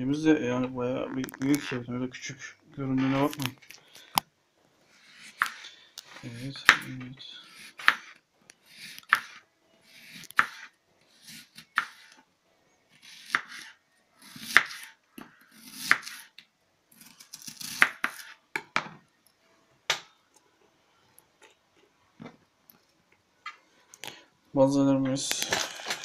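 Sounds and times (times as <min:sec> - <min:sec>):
knife slicing onion on board: 0:06.6 - 0:12.2, 0:13.0 - 0:16.3, 0:17.0 - 0:18.4.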